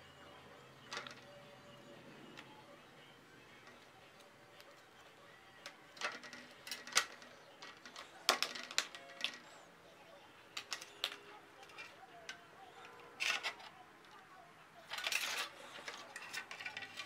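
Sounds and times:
faint music: 0.0 - 17.0
wire winding clicks: 5.6 - 9.6.

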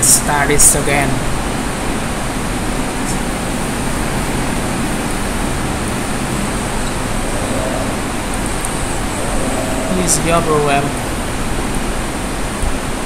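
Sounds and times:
steady rushing noise: 1.4 - 13.0
low hum: 4.8 - 12.2.

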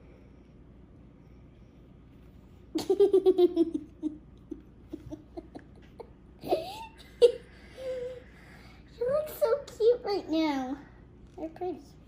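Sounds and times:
girl laughing: 2.8 - 8.2.

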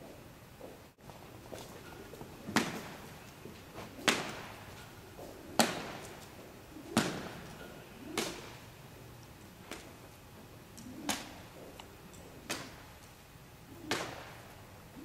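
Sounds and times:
rope slapping with echo: 4.0 - 4.6.

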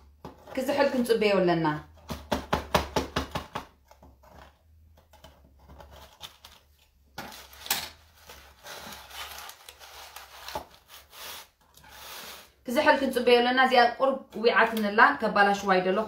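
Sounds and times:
scraping and brushing: 4.1 - 12.6.

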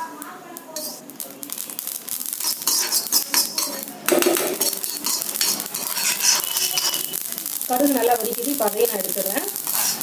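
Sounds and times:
metal spatula scraping a pan: 0.8 - 1.0, 2.3 - 7.3, 9.2 - 10.0.

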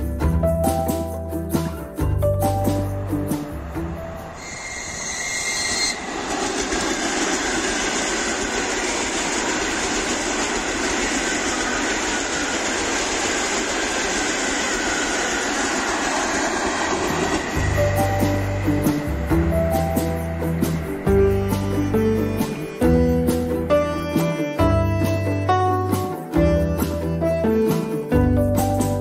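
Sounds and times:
train wheels rushing on rails: 0.0 - 29.0
thin high tone: 2.3 - 6.1.

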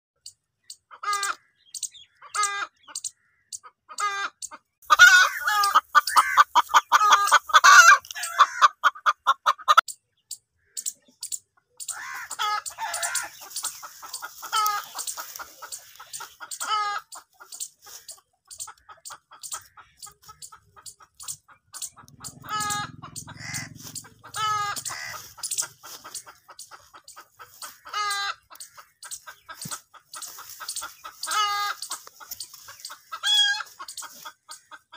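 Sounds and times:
hen clucking: 0.2 - 34.9.

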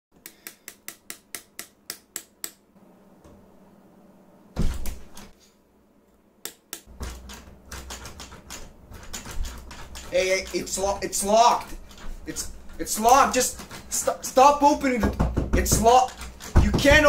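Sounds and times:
loud thump on door: 4.6 - 5.0, 15.0 - 17.0
door latch clicking and rattling: 6.9 - 14.1, 14.8 - 17.0.

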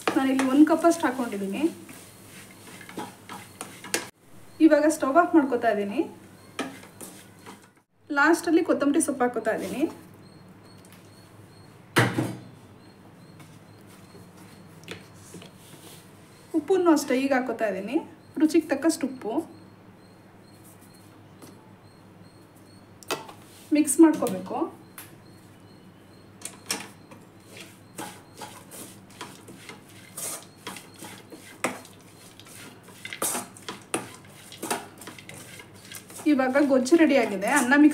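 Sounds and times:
metal spatula scraping a pan: 0.0 - 4.1, 6.6 - 7.8, 27.5 - 37.9.

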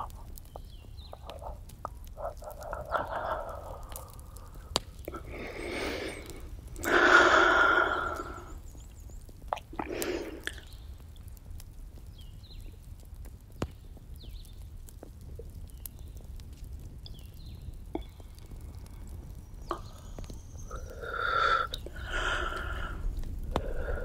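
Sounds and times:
campfire crackling: 0.0 - 24.0
woman breathing smoke: 1.3 - 8.6, 9.7 - 10.7, 19.7 - 24.0.

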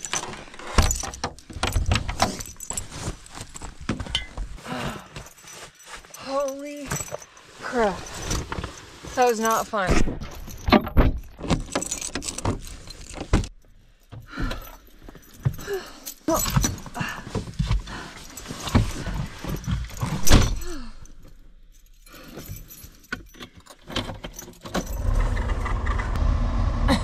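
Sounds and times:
keys jangling: 0.0 - 4.4, 5.1 - 9.7, 10.3 - 25.3
knocks and rustling: 0.0 - 4.6, 5.2 - 15.7.

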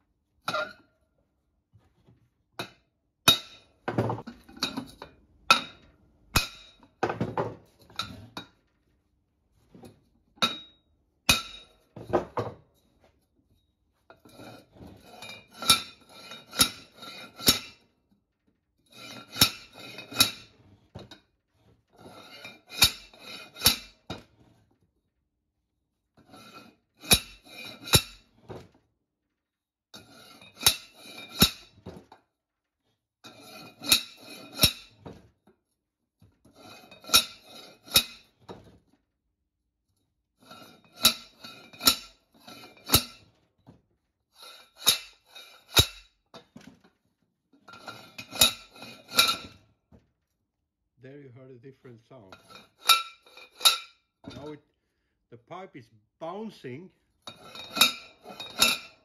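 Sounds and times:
metal pipe clanking: 11.3 - 11.9, 47.7 - 49.6, 52.3 - 54.6, 57.3 - 59.0.

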